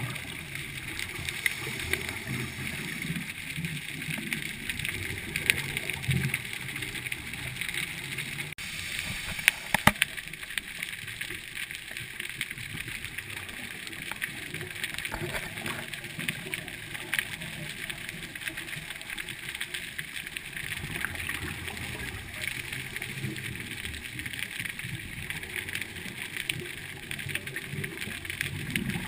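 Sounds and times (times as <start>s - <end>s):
underwater hiss: 0.0s - 6.3s, 8.6s - 11.7s
scuba exhaust bubbles gurgling: 0.0s - 29.0s.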